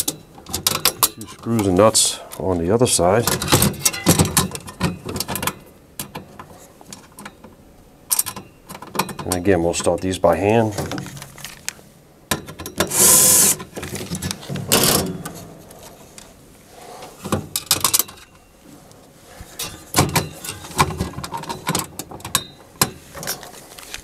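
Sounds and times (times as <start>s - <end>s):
scraping rustles: 12.8s - 22.3s, 23.0s - 24.0s.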